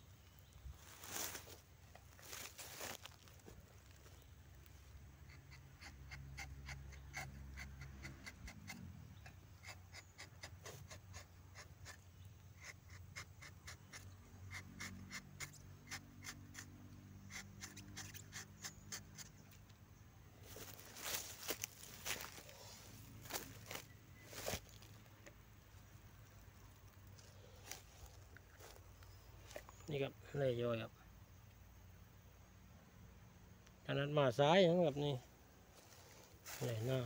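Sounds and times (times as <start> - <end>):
knife scraping tree bark: 5.3 - 19.6.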